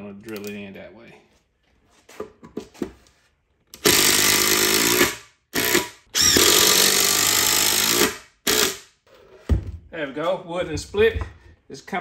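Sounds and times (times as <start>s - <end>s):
impact driver driving screw: 3.8s - 8.9s.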